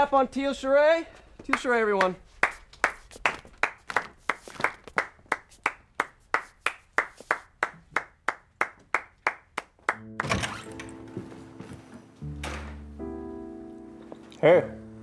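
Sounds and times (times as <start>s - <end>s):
hands clapping: 1.5s - 10.4s.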